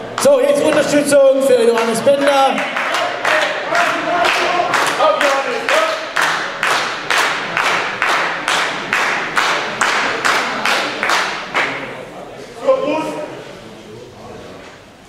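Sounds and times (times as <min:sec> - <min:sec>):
audience clapping in unison: 0:00.1 - 0:11.9.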